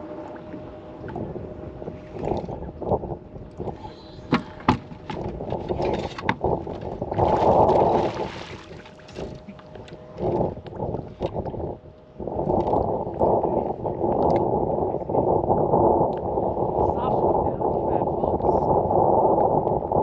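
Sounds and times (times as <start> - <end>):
water lapping against boat hull: 0.0 - 18.7
wind buffeting microphone: 0.0 - 20.0
fishing gear clicks and knocks: 4.2 - 6.9.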